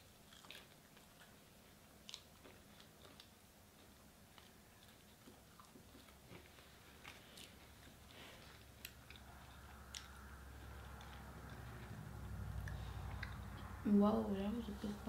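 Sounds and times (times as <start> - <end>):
person chewing: 0.0 - 13.8
soft mouth clicks: 12.5 - 13.8.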